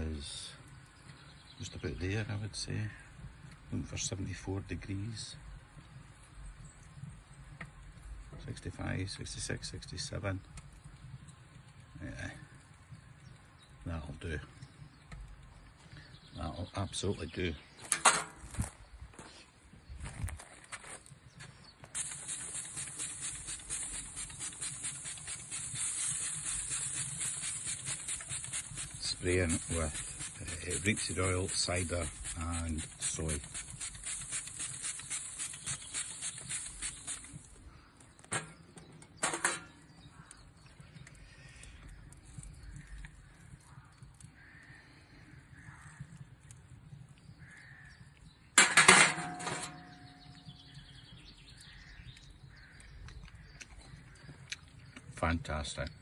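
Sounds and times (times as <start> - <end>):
meat sizzling on a grate: 11.6 - 12.5, 21.8 - 37.7
distant crows cawing: 39.7 - 46.6, 47.2 - 48.6, 51.5 - 55.0.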